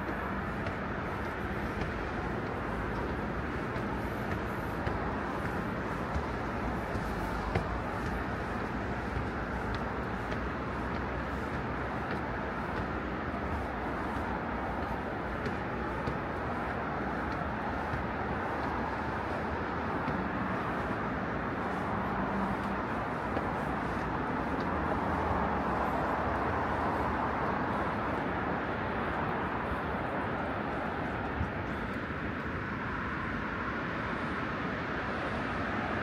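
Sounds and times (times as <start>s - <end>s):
road traffic: 0.0s - 36.0s.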